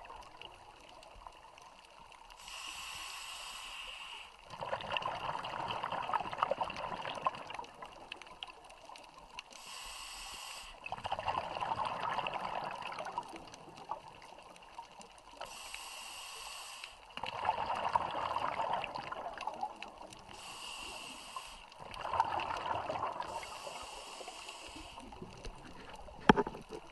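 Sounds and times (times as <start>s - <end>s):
regulator hiss on inhale: 2.3s - 4.5s, 9.4s - 10.9s, 15.3s - 17.2s, 20.2s - 21.9s, 23.2s - 26.0s
bubbling on exhale: 4.5s - 8.0s, 10.8s - 14.3s, 17.1s - 26.9s.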